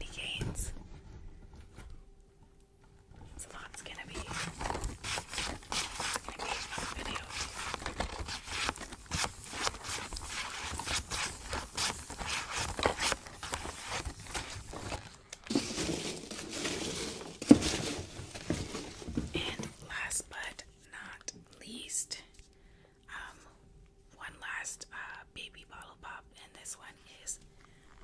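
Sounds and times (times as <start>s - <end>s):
plastic crinkling: 3.4s - 19.6s
box rustling: 3.4s - 19.8s.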